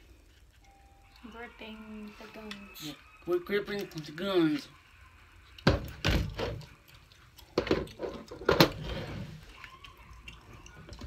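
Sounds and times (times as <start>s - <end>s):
hard objects knocking and clacking: 7.6s - 8.8s.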